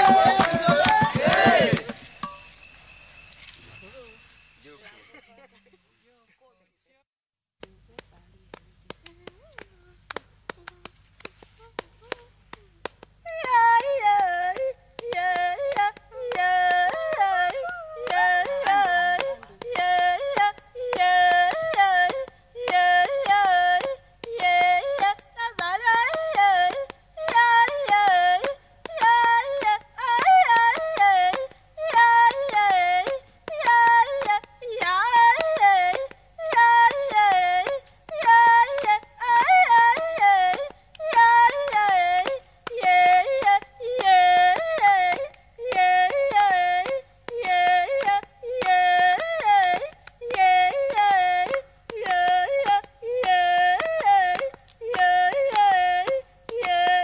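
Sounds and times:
person yodeling: 0:00.0 - 0:01.8, 0:11.6 - 0:23.3.

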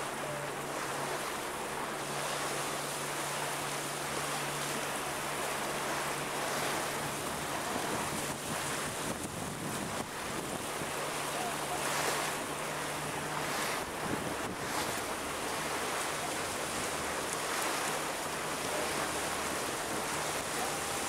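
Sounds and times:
water rushing and splashing: 0:00.0 - 0:21.0
wind buffeting microphone: 0:06.4 - 0:18.6.

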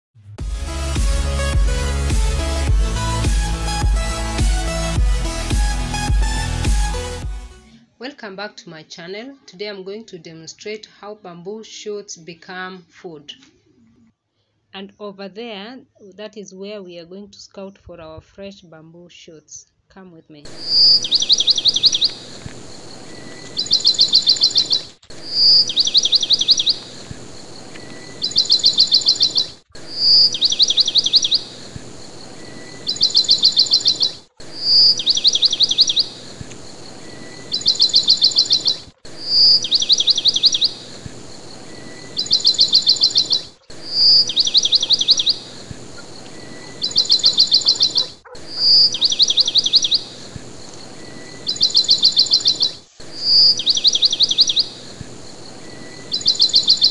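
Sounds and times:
bird whistling and trilling: 0:20.5 - 0:22.3, 0:23.6 - 0:27.0, 0:28.0 - 0:31.6, 0:32.8 - 0:36.3, 0:37.3 - 0:40.9, 0:42.0 - 0:50.2, 0:51.2 - 0:54.8, 0:56.0 - 0:56.9.

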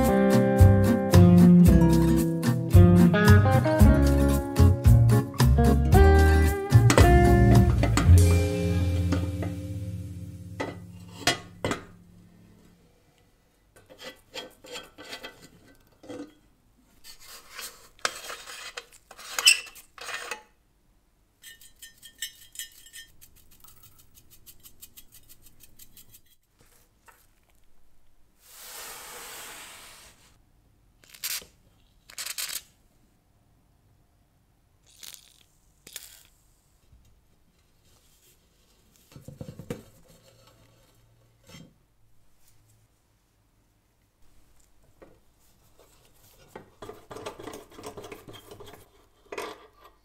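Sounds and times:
metal scraping: 0:06.8 - 0:12.0
steady hiss: 0:28.4 - 0:30.4.

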